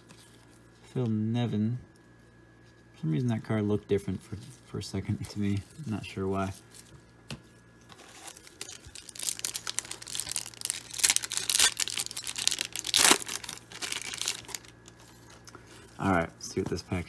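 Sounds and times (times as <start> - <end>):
foil wrapper tearing and crinkling: 7.9 - 15.5.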